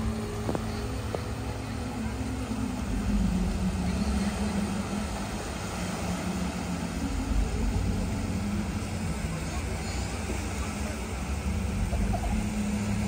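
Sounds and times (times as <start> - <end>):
low drone: 0.0 - 13.0
rough sea surging: 0.0 - 13.0.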